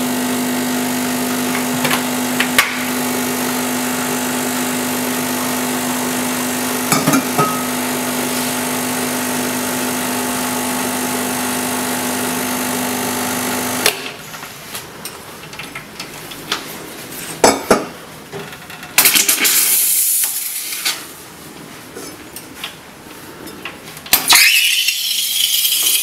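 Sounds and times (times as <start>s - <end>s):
espresso machine pump humming: 0.0s - 13.9s, 24.3s - 26.0s.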